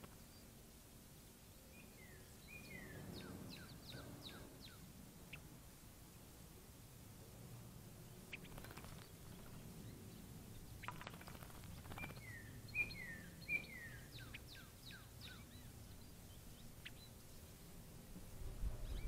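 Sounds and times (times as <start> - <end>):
songbird calling: 1.5 - 5.5, 8.0 - 17.7, 18.8 - 19.0.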